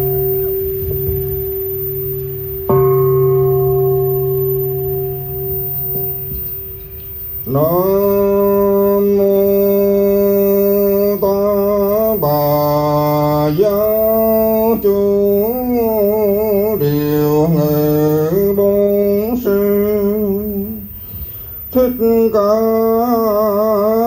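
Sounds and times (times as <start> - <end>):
man chanting: 7.5 - 21.0, 21.7 - 24.0.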